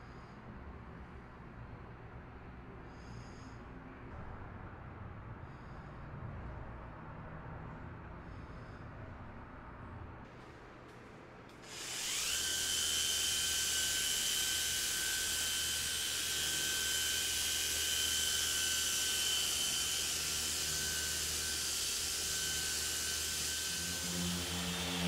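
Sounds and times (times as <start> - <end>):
handheld polisher whining: 11.6 - 25.0.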